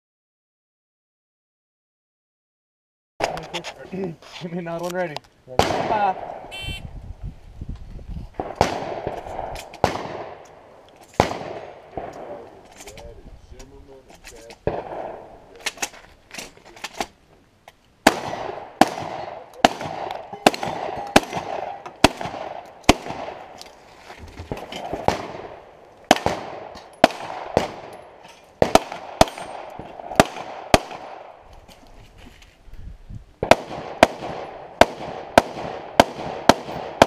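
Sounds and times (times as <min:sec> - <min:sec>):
pistol shots: 0:05.6 - 0:06.4, 0:08.4 - 0:10.5, 0:11.2 - 0:12.4, 0:14.6 - 0:15.8, 0:18.0 - 0:23.6, 0:24.6 - 0:31.4, 0:33.4 - 0:37.0
shotgun shots echoing: 0:05.6 - 0:06.8, 0:08.4 - 0:12.4, 0:14.6 - 0:15.9, 0:18.0 - 0:23.6, 0:24.5 - 0:31.4, 0:33.4 - 0:37.0.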